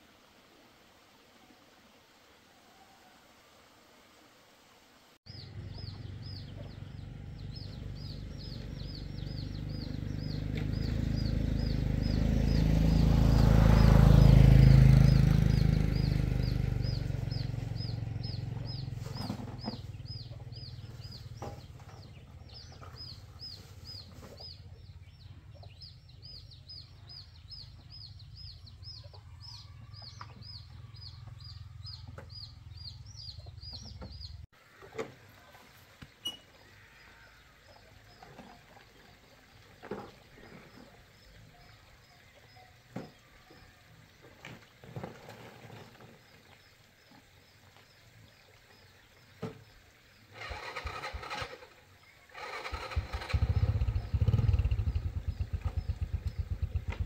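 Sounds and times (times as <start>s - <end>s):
motorbike engine passing: 5.3s - 34.4s, 50.3s - 57.0s.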